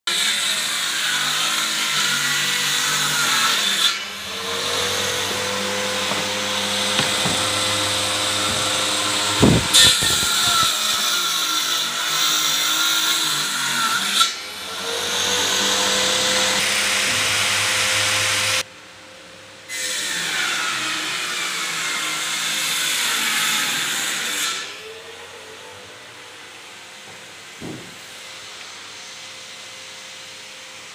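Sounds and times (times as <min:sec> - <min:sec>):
power tool cutting particle board: 0:00.1 - 0:18.6
loud knocks: 0:04.3 - 0:10.5, 0:27.6 - 0:28.0.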